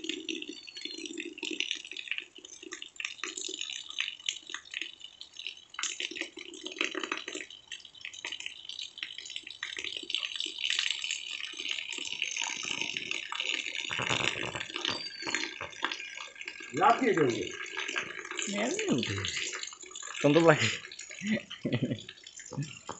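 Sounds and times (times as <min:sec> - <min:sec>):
water pouring from drain pipe: 0:00.0 - 0:22.9
rain falling: 0:08.5 - 0:22.9.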